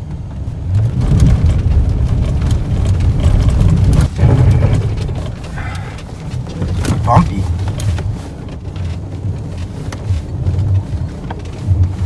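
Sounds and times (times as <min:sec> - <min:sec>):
engine and tyre rumble: 0:00.0 - 0:12.0
truck knocks and rattles: 0:00.0 - 0:12.0.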